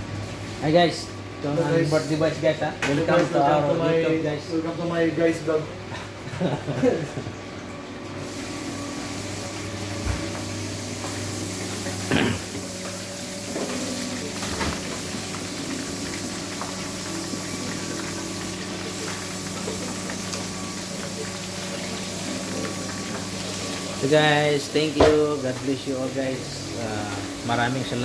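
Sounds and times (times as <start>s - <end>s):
oil sizzling: 7.7s - 28.0s.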